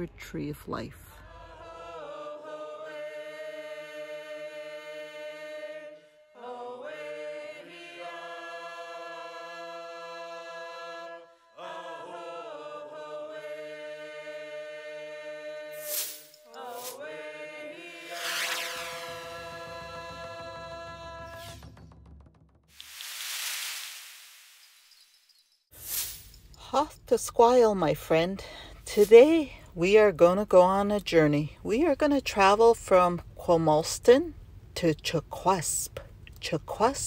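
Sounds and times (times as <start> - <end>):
chant-like vocal music: 1.0 - 22.0
hissing whoosh: 18.0 - 19.6.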